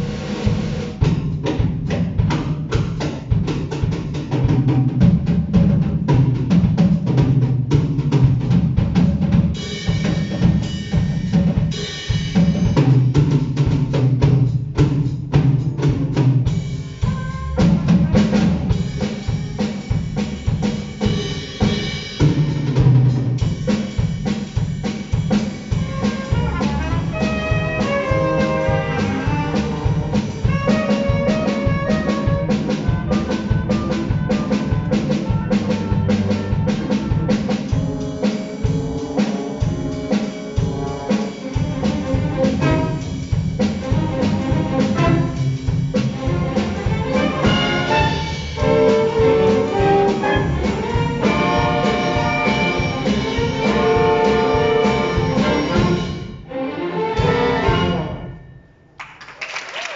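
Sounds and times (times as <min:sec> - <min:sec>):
drum kit playing: 0:00.0 - 0:58.4
double bass line: 0:12.1 - 0:20.7, 0:25.7 - 0:56.4, 0:57.2 - 0:58.2
ensemble chords: 0:25.8 - 0:58.4.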